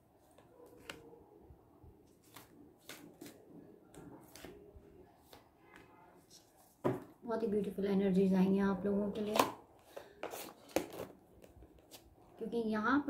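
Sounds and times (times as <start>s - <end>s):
cards clicking and rustling: 0.3s - 1.1s, 2.2s - 4.6s, 9.3s - 12.1s.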